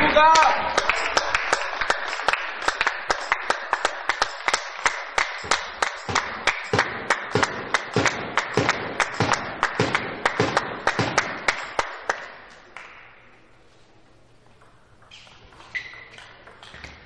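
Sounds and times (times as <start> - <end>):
spectators applauding: 0.0 - 13.1
steady rhythmic clapping: 0.1 - 13.4.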